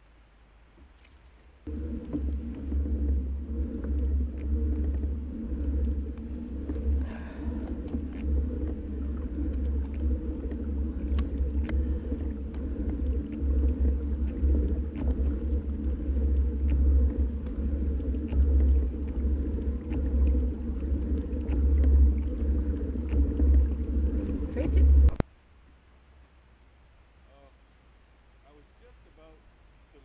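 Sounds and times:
kayak drive rumble: 0.7s - 25.3s
faint light ticks: 0.8s - 1.5s.

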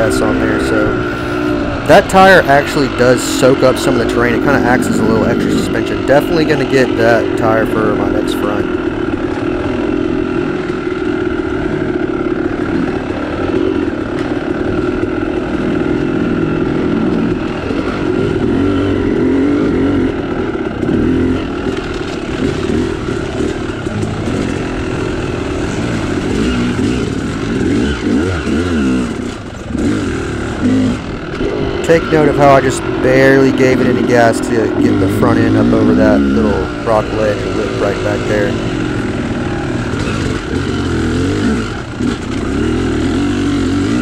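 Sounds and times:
dirt bike engine revving: 0.0s - 44.0s.

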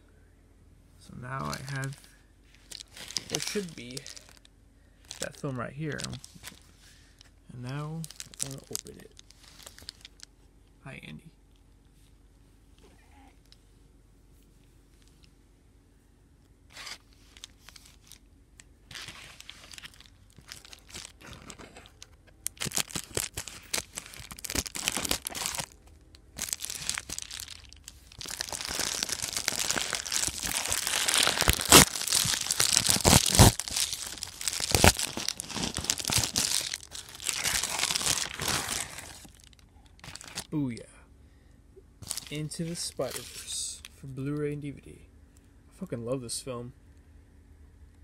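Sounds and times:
bubble mailer crinkling and tearing: 1.4s - 2.0s, 2.6s - 6.8s, 7.7s - 10.3s, 16.7s - 18.2s, 18.9s - 40.6s, 42.0s - 43.6s.

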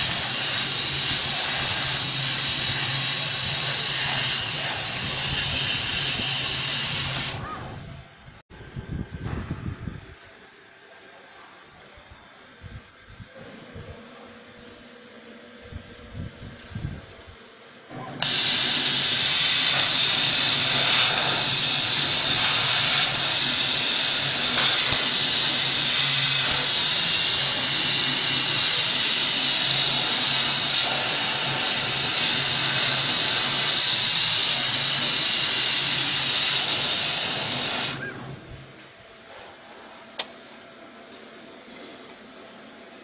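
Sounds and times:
laser cutter air assist hiss: 0.0s - 7.9s, 18.1s - 38.4s
low machine hum: 0.0s - 10.6s.

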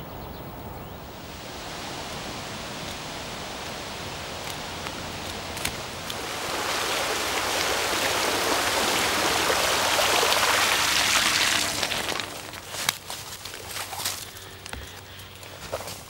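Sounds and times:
bicycle splashing through water: 5.4s - 14.2s.

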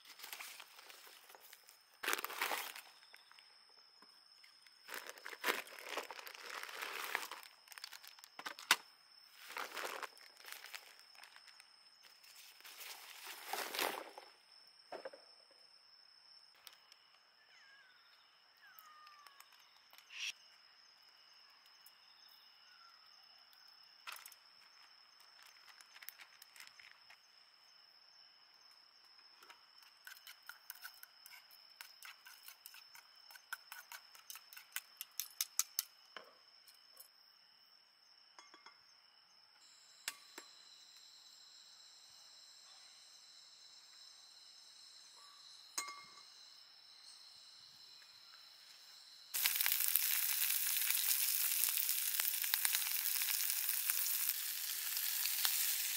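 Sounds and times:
insect chirring: 0.0s - 55.9s
plastic zip bag crinkling: 4.9s - 8.3s.

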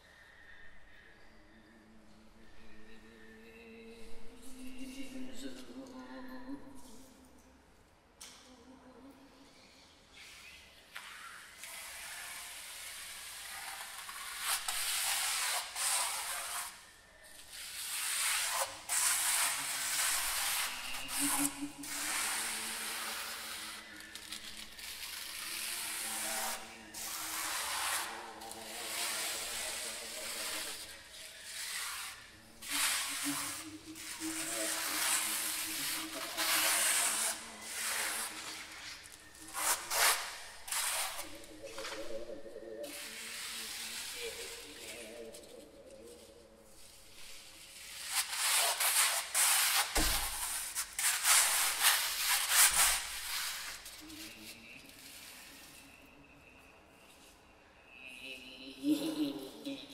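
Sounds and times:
low held tone: 55.5s - 59.9s.

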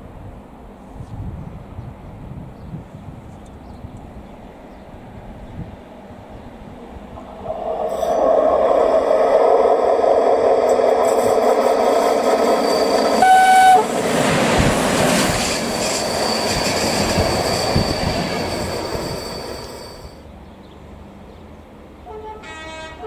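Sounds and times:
electric locomotive running: 7.0s - 20.3s
train horn blast: 13.1s - 13.9s, 22.0s - 23.0s.

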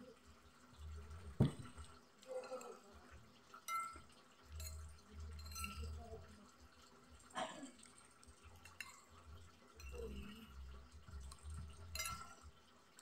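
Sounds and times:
glass set down with knock: 1.3s - 1.8s
spoon clinking against glass plate: 3.6s - 6.0s, 8.6s - 9.1s, 9.8s - 10.6s, 11.3s - 12.5s.

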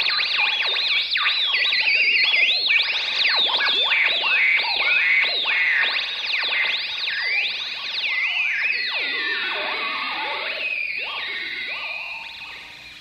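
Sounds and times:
warbling electronic tones swooping: 5.4s - 13.0s.

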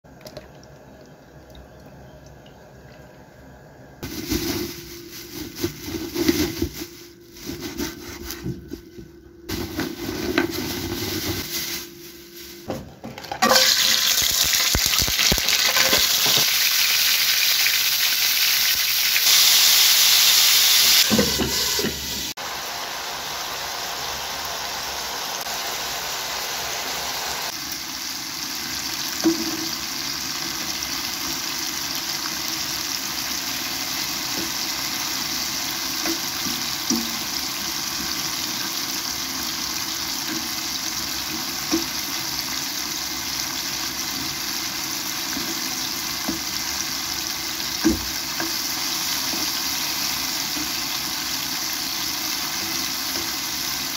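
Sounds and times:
liquid splashing into frying pan: 13.4s - 17.6s
loud steady hiss: 19.0s - 28.0s.

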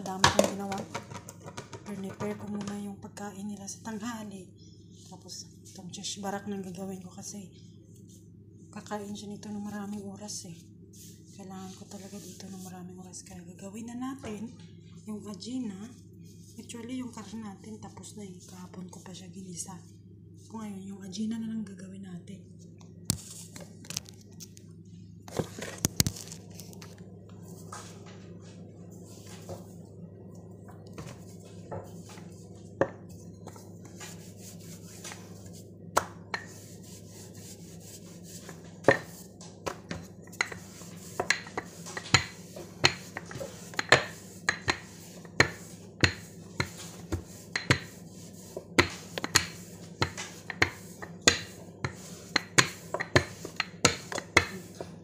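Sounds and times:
rolling pin knocking on countertop: 0.2s - 2.7s, 38.4s - 54.8s.

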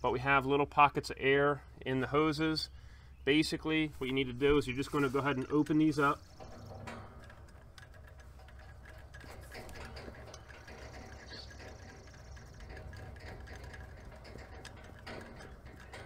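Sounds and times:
low steady hum: 0.0s - 16.0s
gauge valves clicking: 4.8s - 16.0s.

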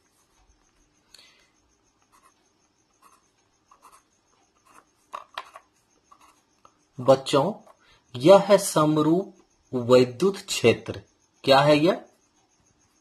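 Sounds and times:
pen scratching on paper: 2.1s - 2.4s, 3.0s - 6.4s.

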